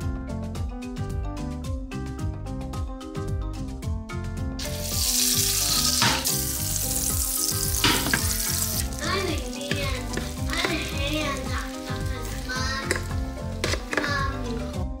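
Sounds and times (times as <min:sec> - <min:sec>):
butter sizzling in a frying pan: 0:04.6 - 0:14.4.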